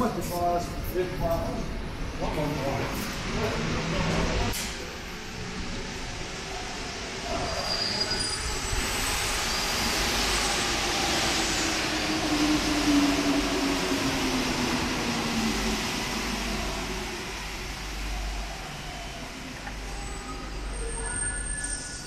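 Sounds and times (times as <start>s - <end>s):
train pulling in with whine: 0.0s - 22.0s.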